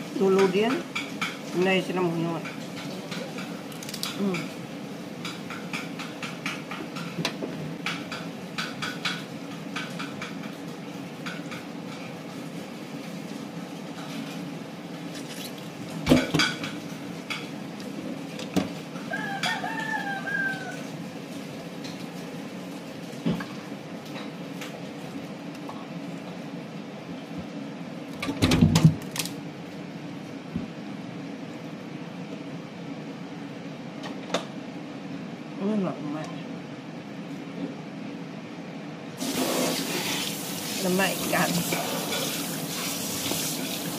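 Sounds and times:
rooster crowing: 0:19.0 - 0:21.0.

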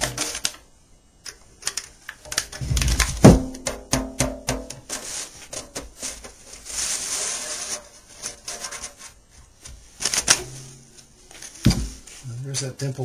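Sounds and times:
cloth rubbing on banjo head: 0:04.9 - 0:09.3.

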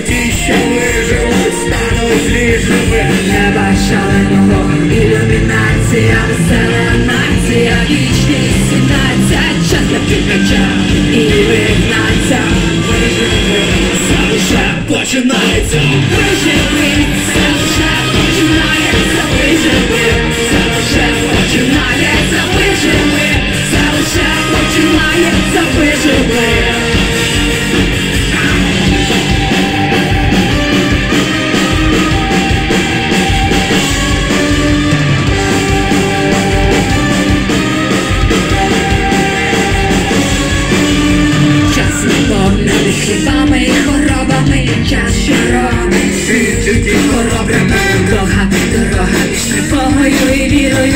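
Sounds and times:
man and woman singing: 0:00.0 - 0:29.9, 0:41.5 - 0:50.9
electric guitar: 0:00.0 - 0:50.9
steady drum beat: 0:00.0 - 0:50.9
trumpet: 0:00.0 - 0:50.9.

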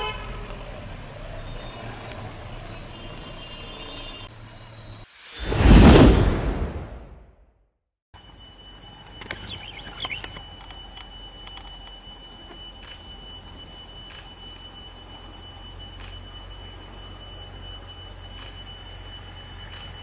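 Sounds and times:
high-pitched insect drone: 0:08.2 - 0:20.0.

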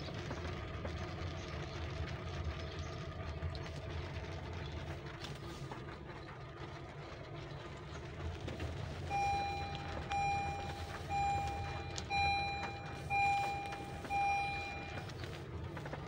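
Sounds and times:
car engine humming: 0:03.5 - 0:16.0
vehicle warning beeps: 0:09.1 - 0:15.4.

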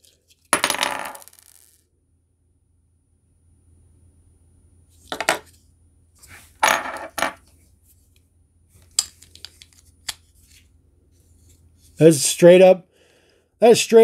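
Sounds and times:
toy parts clattering: 0:08.8 - 0:10.2.

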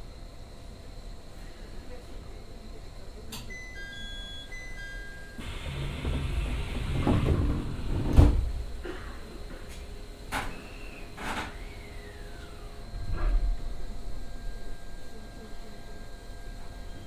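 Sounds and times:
train doors sliding shut: 0:05.4 - 0:09.0, 0:09.6 - 0:11.8
brief electric whines: 0:10.5 - 0:13.5.

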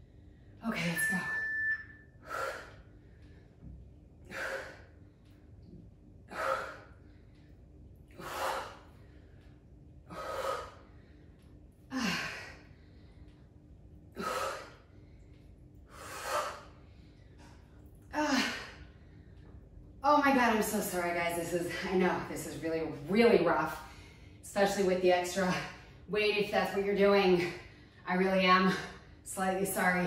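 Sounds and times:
woman breathing hard: 0:02.2 - 0:05.5, 0:06.2 - 0:13.5, 0:14.1 - 0:19.6.

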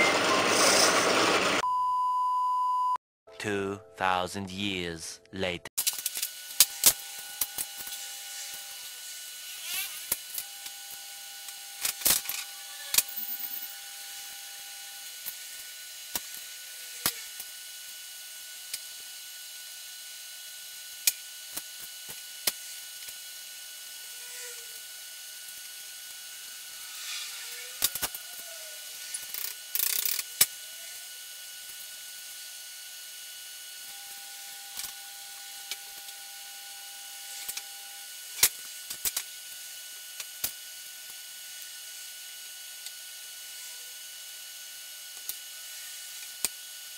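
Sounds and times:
ratchet wrench clicking: 0:29.0 - 0:30.4.

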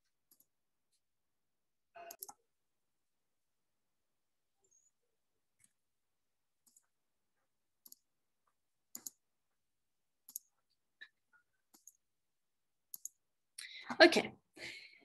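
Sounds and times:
computer mouse clicks: 0:00.3 - 0:00.5, 0:02.0 - 0:02.4, 0:06.6 - 0:07.0, 0:07.8 - 0:08.1, 0:08.9 - 0:09.2, 0:10.2 - 0:12.0, 0:12.9 - 0:13.2.

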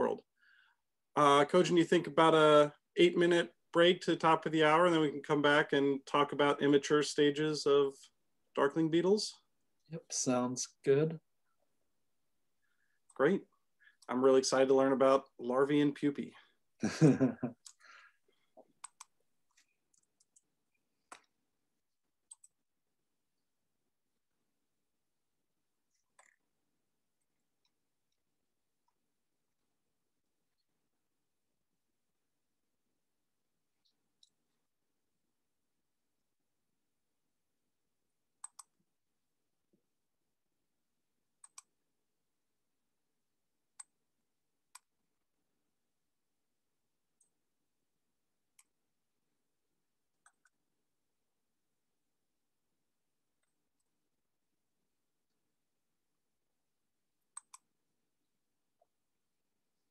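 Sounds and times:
computer mouse clicking: 0:18.6 - 0:21.4, 0:22.2 - 0:22.6, 0:38.4 - 0:38.8, 0:41.4 - 0:41.8, 0:43.7 - 0:44.0, 0:50.2 - 0:50.6, 0:57.3 - 0:57.7.

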